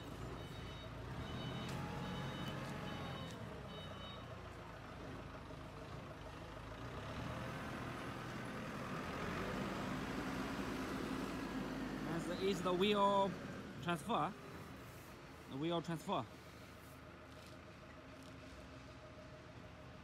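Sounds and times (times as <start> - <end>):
reversing beeper beeping: 0.3 - 4.3.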